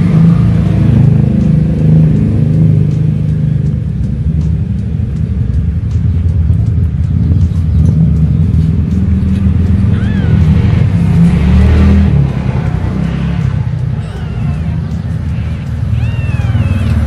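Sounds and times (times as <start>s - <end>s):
kitten squeak: 9.9s - 10.5s, 14.0s - 17.0s.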